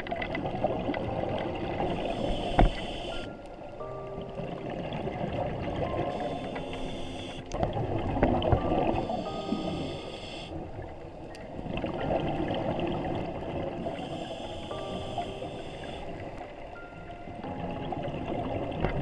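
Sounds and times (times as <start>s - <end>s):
regulator hissing inhalation: 9.0s - 10.6s, 14.0s - 16.1s.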